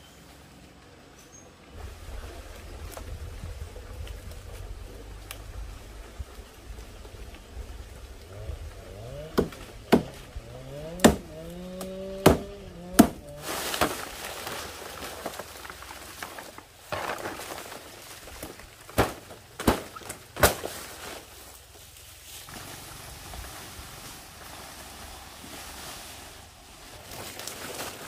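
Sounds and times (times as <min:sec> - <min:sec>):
sharp knocks: 0:09.3 - 0:10.2, 0:10.9 - 0:11.3, 0:12.1 - 0:13.2.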